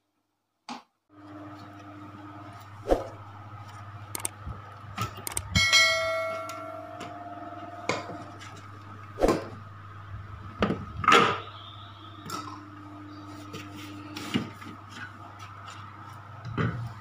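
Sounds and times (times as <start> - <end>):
short ringing note: 5.6 - 7.5.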